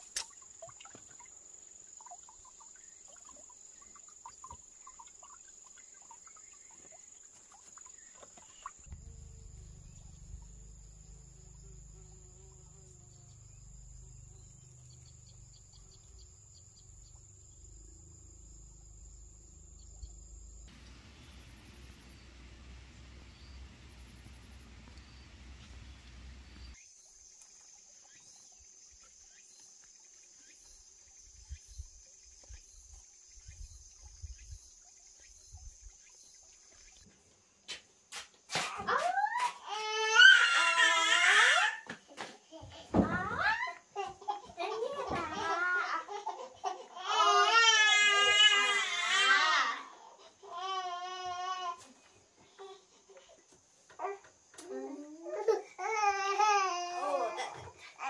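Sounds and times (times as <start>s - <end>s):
insects chirping: 0.0s - 41.7s
steady hiss: 6.8s - 26.8s
low rumble: 8.8s - 26.8s.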